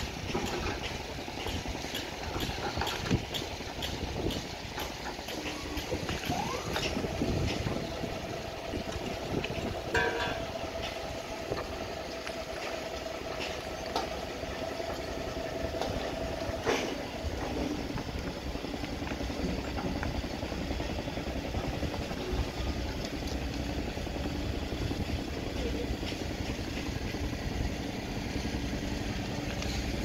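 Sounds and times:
machinery engine rumbling: 0.0 - 30.0
sharp metal clanks: 9.9 - 10.5.

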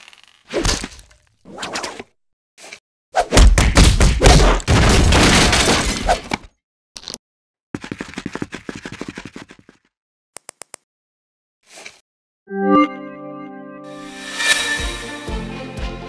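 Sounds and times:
crashing and breaking noise: 4.6 - 6.3.

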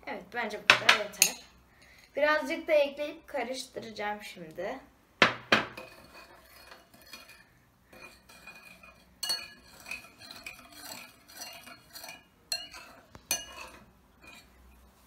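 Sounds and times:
spoon clinking in ceramic bowl: 8.0 - 14.5.

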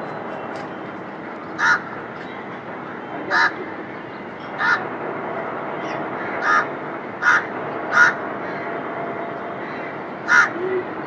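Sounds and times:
crow cawing: 1.6 - 2.0, 3.3 - 3.6, 4.6 - 4.8, 5.9 - 8.6, 10.2 - 10.9.

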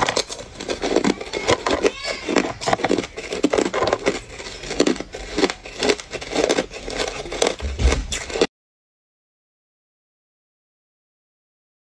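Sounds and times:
ice cubes crunched between teeth: 0.0 - 8.5.

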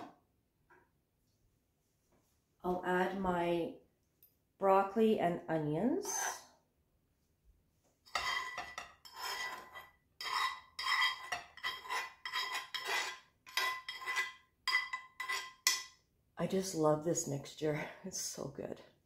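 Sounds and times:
metal utensil scraping frying pan: 8.1 - 15.9.

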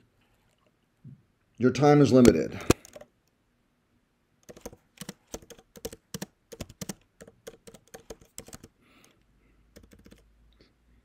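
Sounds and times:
typing on a keyboard: 2.7 - 3.1, 4.4 - 10.3.

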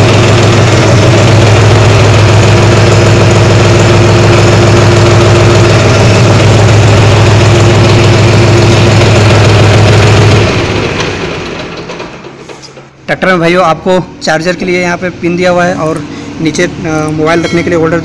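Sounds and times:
tractor diesel engine running: 0.0 - 18.0.

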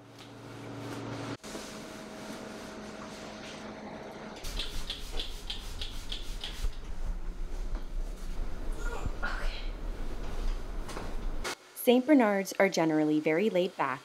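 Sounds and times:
brush scratching through dog fur: 4.5 - 6.9.

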